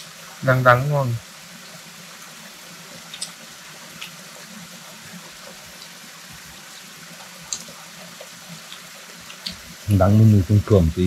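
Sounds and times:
flowing water rushing: 0.0 - 11.0
faint clicks: 3.1 - 4.2, 7.4 - 7.8.

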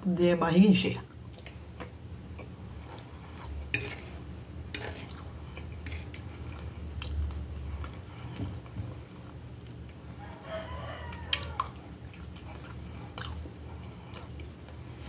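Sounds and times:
chewing soft food: 1.1 - 15.0
fork scraping on plate: 3.7 - 5.2.

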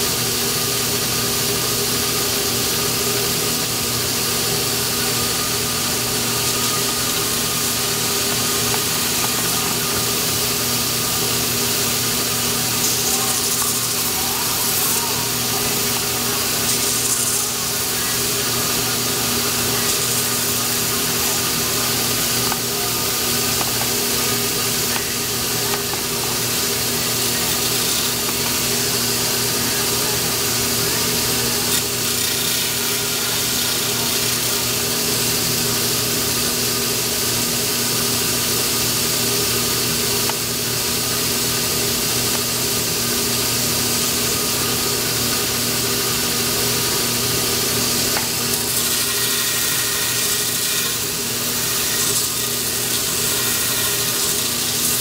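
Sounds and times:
motor hum: 2.2 - 37.7
grinding wheel grinding: 3.2 - 35.8, 39.9 - 55.0.

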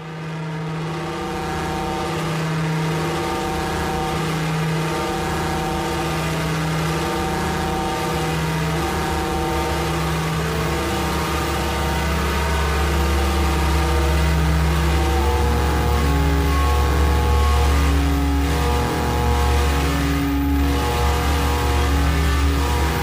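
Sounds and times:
droning synthesiser notes: 0.0 - 23.0
deep rumble: 7.2 - 23.0.

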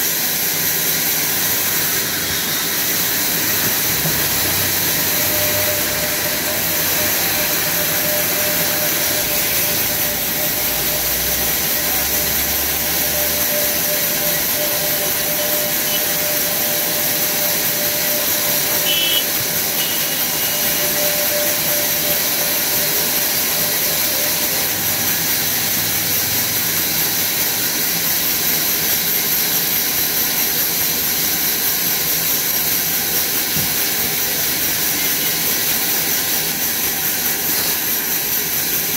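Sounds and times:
band saw cutting log: 0.0 - 38.9.

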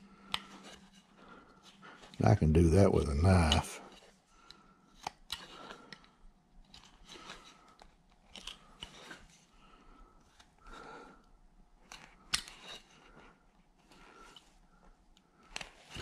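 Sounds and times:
knife carving wood: 6.6 - 9.3.

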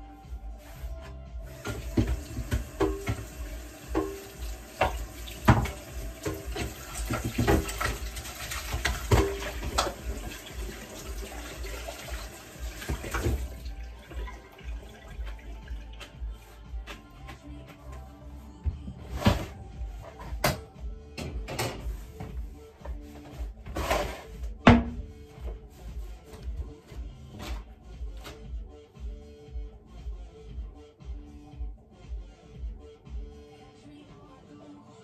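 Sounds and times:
tap water running into sink: 1.6 - 16.3.

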